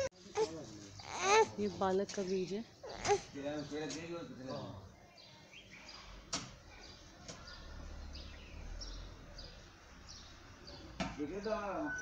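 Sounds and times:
faint background noise: 0:00.0 - 0:12.0
bird chirping: 0:00.7 - 0:12.0.

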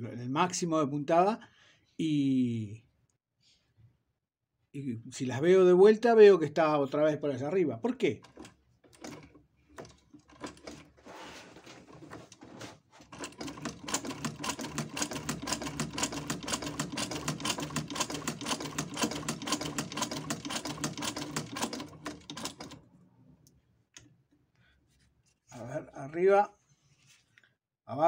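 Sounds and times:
sewing machine clatter: 0:08.2 - 0:22.8.

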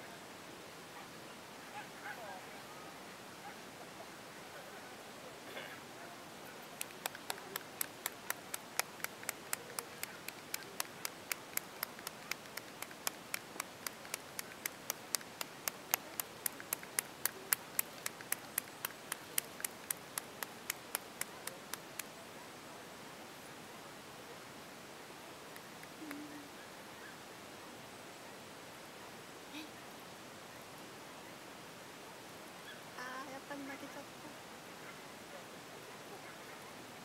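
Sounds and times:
hand clapping: 0:06.8 - 0:22.1.

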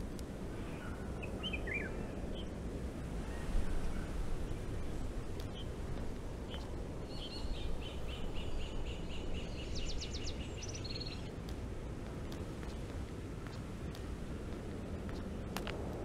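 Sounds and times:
low outdoor rumble: 0:00.0 - 0:16.0
small bird chirping: 0:03.3 - 0:05.8, 0:06.4 - 0:11.4.

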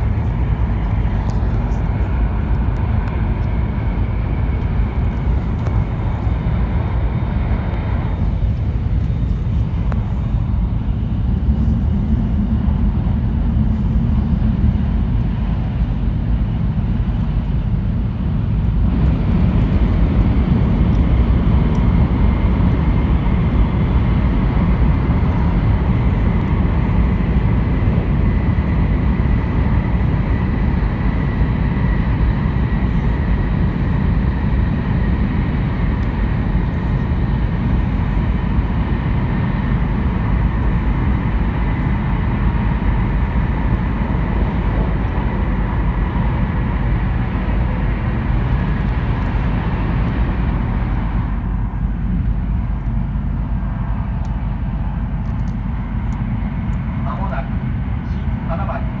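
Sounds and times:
faint steady whine: 0:00.0 - 0:59.0
train interior rumble: 0:00.0 - 0:59.0.

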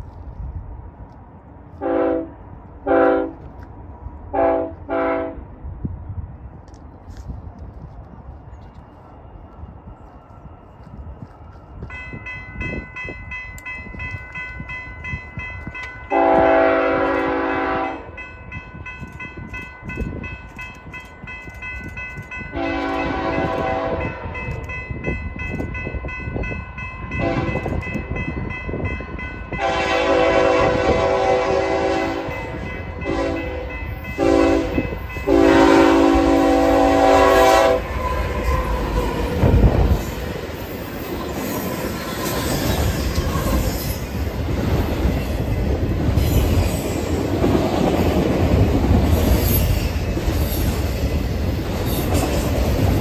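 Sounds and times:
locomotive horn blasts: 0:01.8 - 0:03.4, 0:04.3 - 0:05.4, 0:16.1 - 0:18.2, 0:22.5 - 0:24.4, 0:27.1 - 0:27.9, 0:29.5 - 0:38.3
crossing warning bell ringing: 0:09.3 - 0:44.4, 0:45.0 - 0:47.1.

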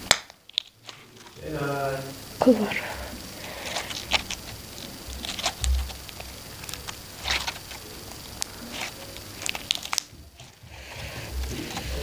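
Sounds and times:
slime crackling pops: 0:00.0 - 0:00.8, 0:03.8 - 0:10.6
slime squelching: 0:02.4 - 0:12.0.

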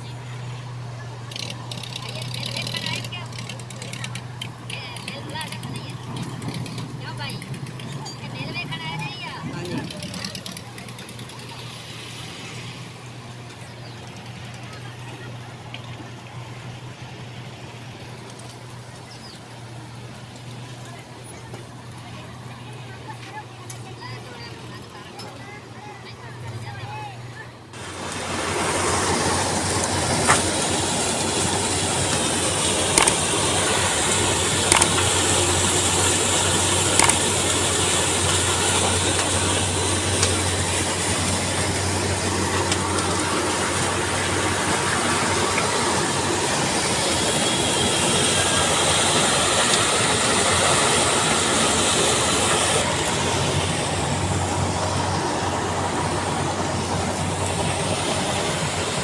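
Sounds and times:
machinery din: 0:28.8 - 0:59.0.

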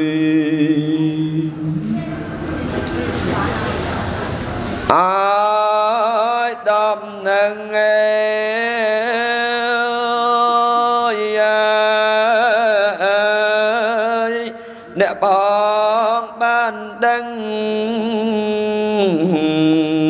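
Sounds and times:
man chanting into a microphone: 0:00.0 - 0:02.1, 0:04.9 - 0:20.0.

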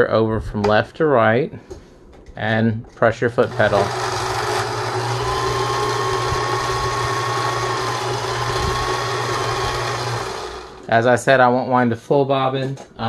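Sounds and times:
sewing machine motor humming: 0:03.4 - 0:10.9.

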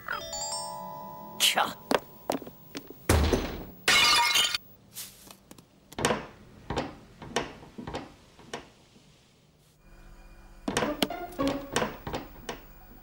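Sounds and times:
glass shattering: 0:03.9 - 0:04.6.

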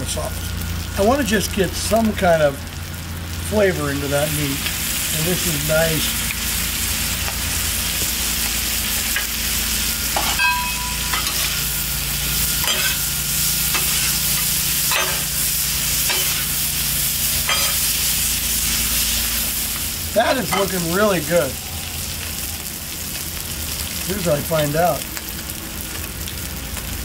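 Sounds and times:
low hum: 0:00.0 - 0:24.1
meat sizzling on a griddle: 0:00.0 - 0:27.0
metal spatulas scraping griddle: 0:10.2 - 0:11.7, 0:12.4 - 0:16.6, 0:17.4 - 0:18.0.

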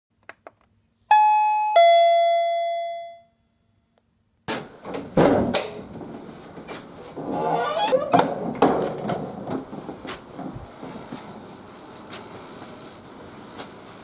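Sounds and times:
two-note doorbell chime: 0:01.1 - 0:03.4
front door opening rattle: 0:04.5 - 0:11.6.

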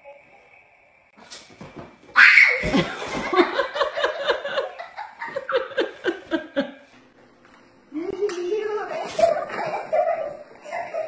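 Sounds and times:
faint steady tone: 0:00.0 - 0:01.2
laughter: 0:02.6 - 0:06.9, 0:09.2 - 0:11.0.

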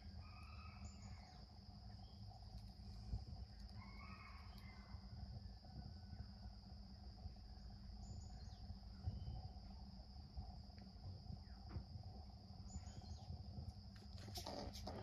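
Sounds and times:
scratchy rustles: 0:14.0 - 0:15.0.

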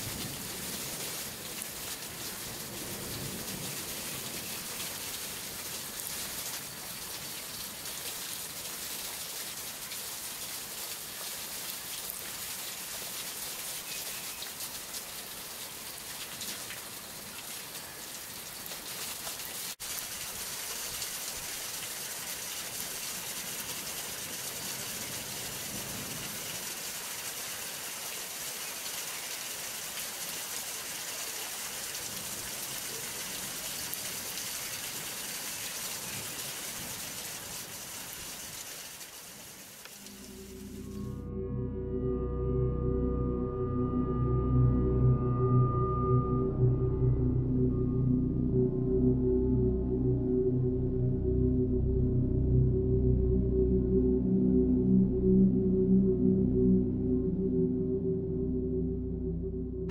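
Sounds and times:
hail pattering on leaves: 0:00.0 - 0:40.8.

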